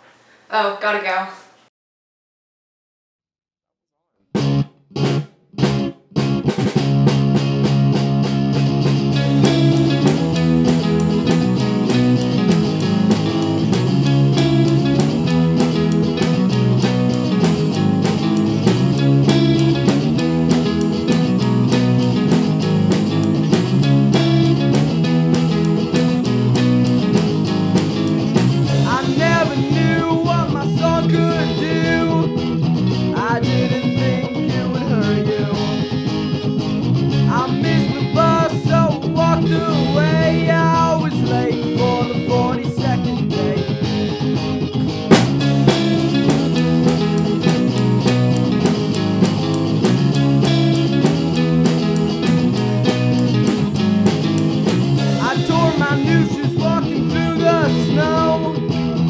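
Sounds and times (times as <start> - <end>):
drums: 4.4 - 59.0
electric guitars: 4.4 - 59.0
rock band playing: 4.4 - 59.0
person singing: 28.6 - 36.1, 37.3 - 43.9, 55.0 - 59.0.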